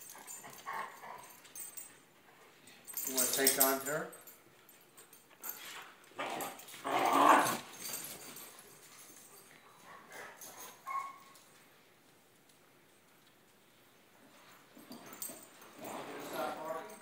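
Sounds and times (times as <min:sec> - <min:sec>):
dogs vocalising in rough play: 0:00.0 - 0:01.4, 0:05.4 - 0:08.4, 0:14.9 - 0:16.4
dog yipping: 0:10.1 - 0:11.4.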